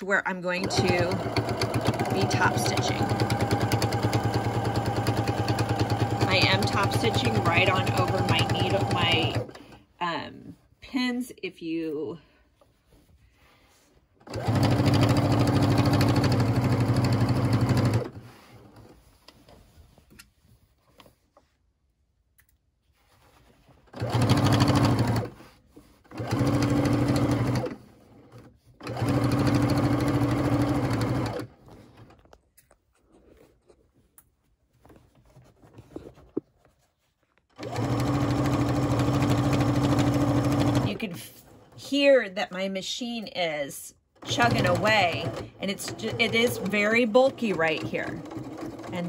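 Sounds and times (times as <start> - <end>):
sewing machine stitching: 0.4 - 9.8, 14.2 - 19.2, 23.8 - 32.3, 37.5 - 42.7, 44.2 - 49.0.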